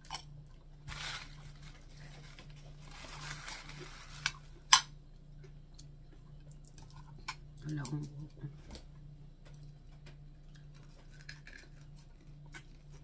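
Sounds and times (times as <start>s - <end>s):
rustling of crisp fish: 0.8s - 4.6s.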